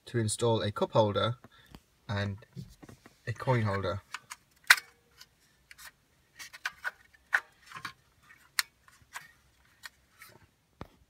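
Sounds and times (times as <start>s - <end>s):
hard plastic parts clicking: 2.8s - 10.9s.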